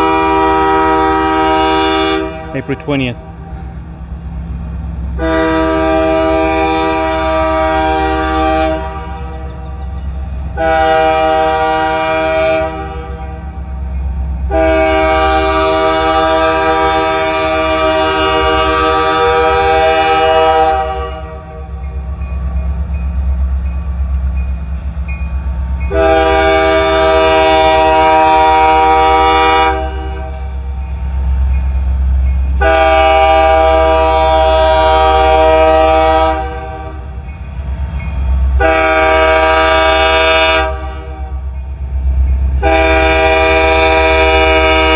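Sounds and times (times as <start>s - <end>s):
locomotive air horn blasts: 0.0s - 2.8s, 5.2s - 9.4s, 10.5s - 13.4s, 14.5s - 21.8s, 25.9s - 30.6s, 32.6s - 37.1s, 38.6s - 41.4s, 42.6s - 44.9s
train rumble: 0.0s - 44.9s.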